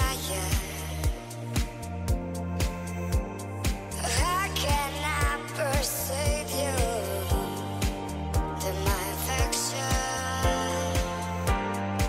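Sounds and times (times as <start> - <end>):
music with drum beat and bass: 0.0 - 12.0.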